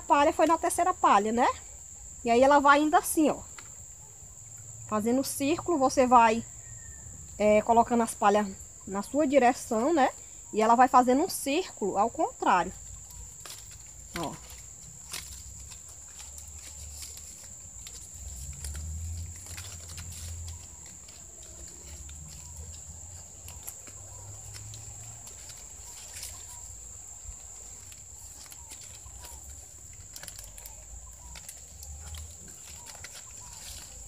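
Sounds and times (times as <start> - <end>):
palm fronds rustling and crackling: 0.0 - 34.0
faint bird calls: 18.7 - 34.0.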